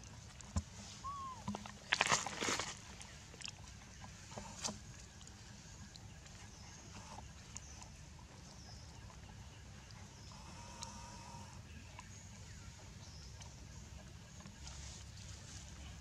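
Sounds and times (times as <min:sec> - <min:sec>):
dry leaves crackling: 0:01.0 - 0:03.3.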